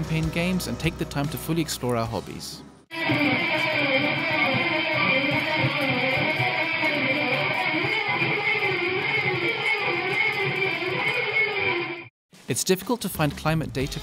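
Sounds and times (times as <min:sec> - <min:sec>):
electric guitar playing: 0:02.9 - 0:12.1.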